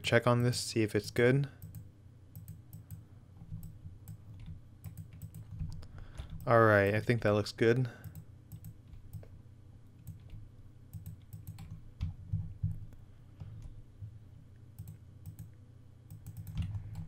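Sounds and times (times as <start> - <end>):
keyboard and mouse clicks: 1.6 - 6.6, 8.0 - 9.4, 10.0 - 13.8, 14.7 - 17.0.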